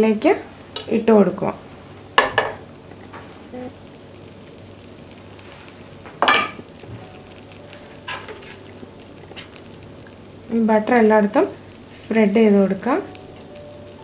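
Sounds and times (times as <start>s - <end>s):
butter sizzling in a pan: 0.7s - 14.0s.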